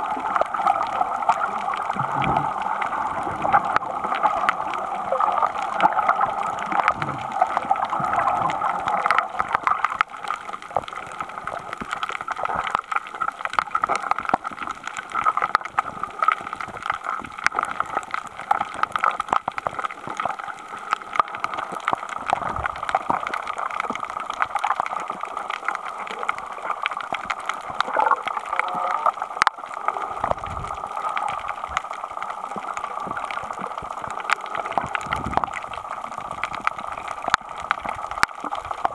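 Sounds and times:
muffled underwater water gurgling: 0.0s - 38.9s
small underwater clicks: 0.0s - 38.9s.

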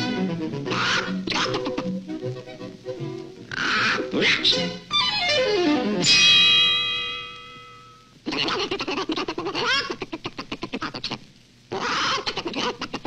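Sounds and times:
held musical tone: 0.0s - 8.2s
cartoon chicken clucking: 0.6s - 2.0s, 3.5s - 4.8s, 8.3s - 13.0s.

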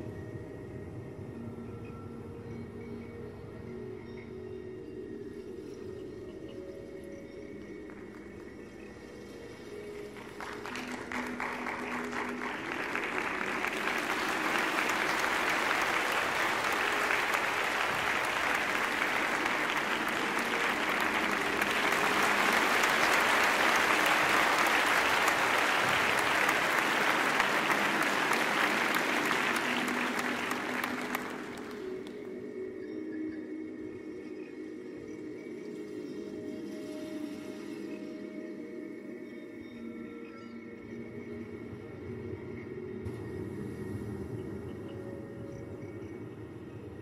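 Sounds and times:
audience applauding: 10.0s - 32.3s.

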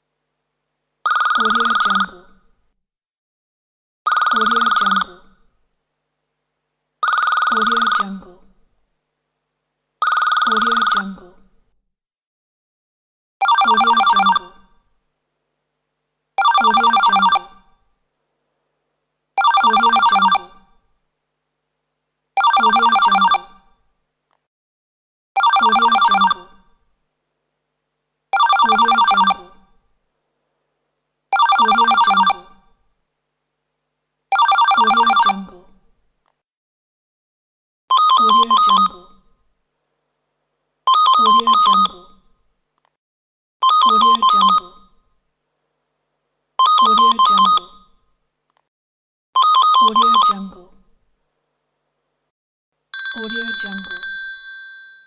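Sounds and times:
telephone bell ringing: 1.1s - 2.1s, 7.0s - 8.0s, 10.0s - 11.0s, 13.4s - 14.6s, 16.4s - 17.6s, 19.4s - 20.6s, 22.4s - 23.6s, 25.4s - 26.4s, 28.4s - 29.4s, 31.4s - 32.4s, 34.3s - 35.3s, 53.0s - 55.0s
different telephone bell ringing: 53.0s - 55.0s.

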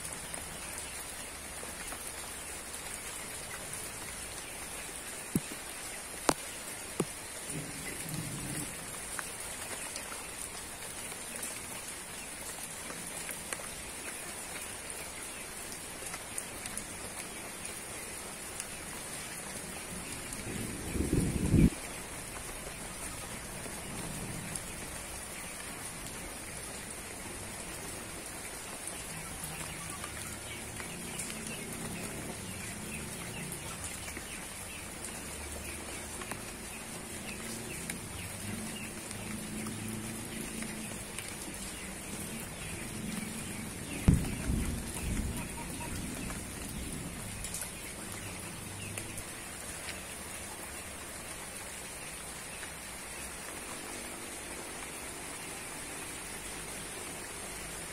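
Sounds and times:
rain falling on foliage: 0.0s - 57.9s
low thump: 44.0s - 44.4s.

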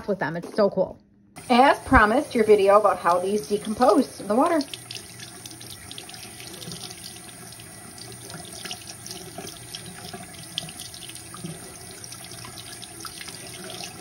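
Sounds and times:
faucet water splashing into basin: 1.4s - 14.0s.

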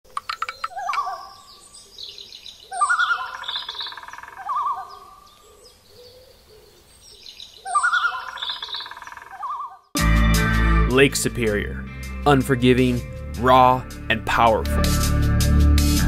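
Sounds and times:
bird trilling calls: 0.1s - 9.9s.

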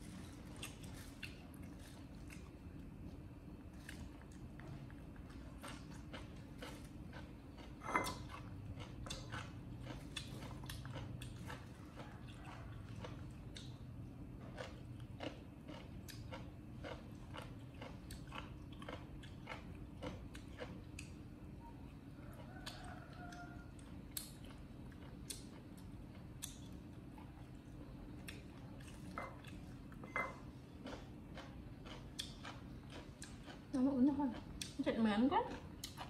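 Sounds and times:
monkey chewing and crunching food: 0.0s - 21.1s
steady low hum: 0.0s - 36.0s.

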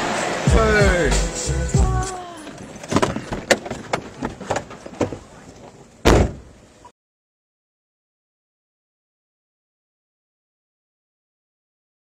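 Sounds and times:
knocks and clicks inside a car: 2.4s - 6.4s
loud thump: 6.0s - 6.6s.

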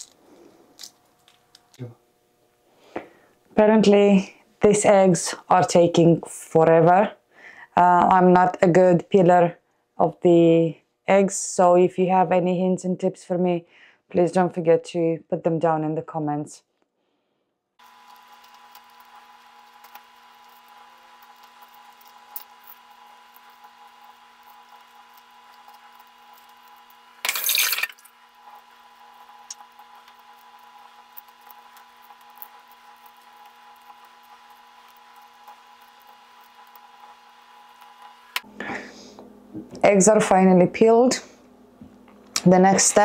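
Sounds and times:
eggshell crackling and clicking: 17.8s - 38.4s.

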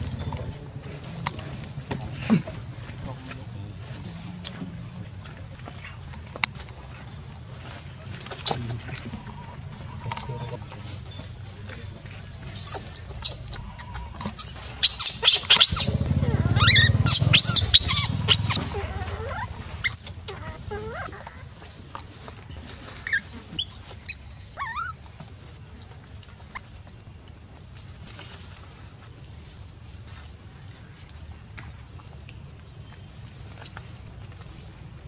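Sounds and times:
baby monkey screaming: 12.6s - 21.4s, 23.0s - 25.0s.

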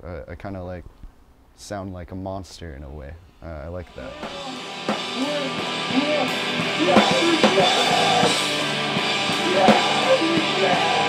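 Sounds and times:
person singing: 3.9s - 8.6s, 9.2s - 11.0s
drum kit hits: 3.9s - 11.0s
rock song: 3.9s - 11.0s.

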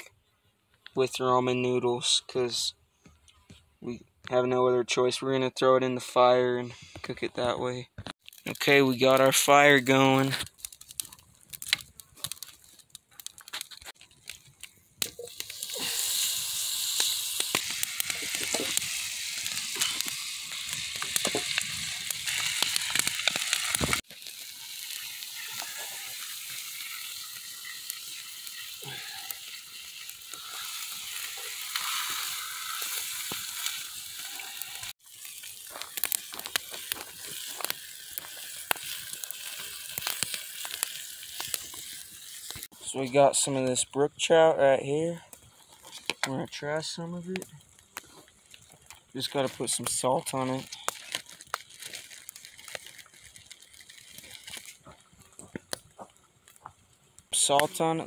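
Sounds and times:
fire popping and crackling: 8.0s - 58.0s
fish sizzling in a pan: 8.3s - 42.8s, 47.2s - 58.0s.

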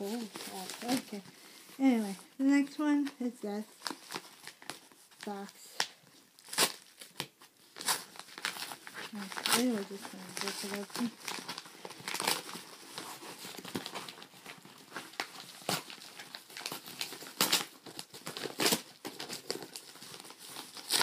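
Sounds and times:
padded envelope ripping open: 0.0s - 1.2s, 3.8s - 21.0s
paper rustling: 0.0s - 2.2s, 6.4s - 21.0s.

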